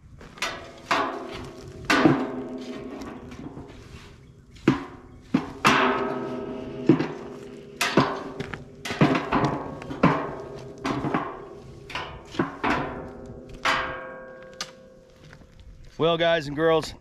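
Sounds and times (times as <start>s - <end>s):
metal rod knocking on steel drum: 4.7s - 14.5s.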